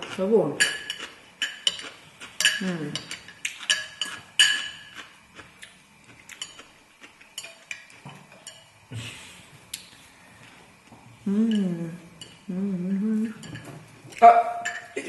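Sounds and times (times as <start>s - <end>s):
utensils clinking on glass dishes: 0.6s - 5.0s, 7.4s - 8.7s, 13.3s - 15.0s.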